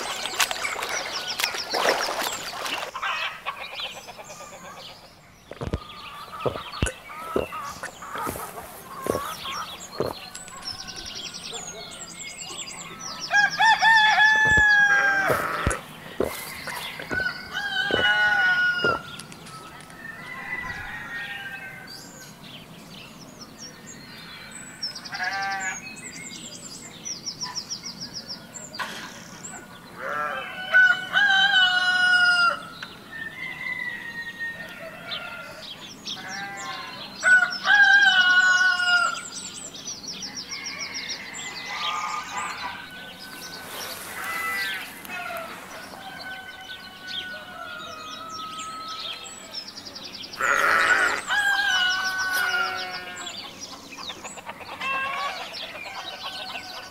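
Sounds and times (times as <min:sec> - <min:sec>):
small birds chirping: 0:00.0 - 0:30.3, 0:35.0 - 0:56.9
rooster crowing: 0:13.3 - 0:19.2, 0:20.0 - 0:21.9, 0:40.6 - 0:49.1.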